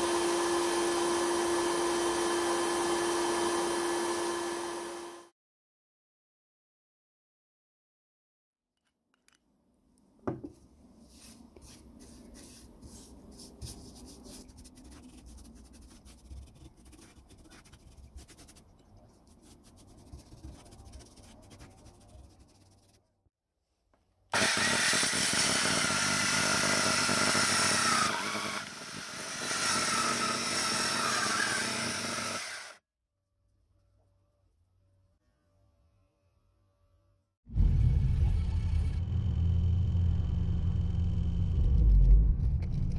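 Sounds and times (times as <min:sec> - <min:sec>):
electric circular saw running: 0:00.0 - 0:05.3, 0:24.4 - 0:32.8
paintbrush rubbing on wood: 0:11.0 - 0:23.0.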